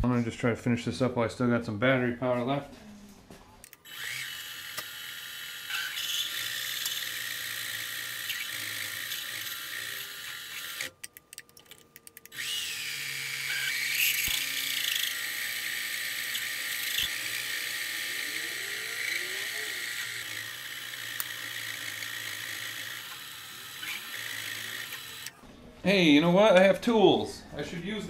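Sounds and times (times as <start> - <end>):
lathe drilling into steel: 3.9 - 10.9, 12.3 - 25.3.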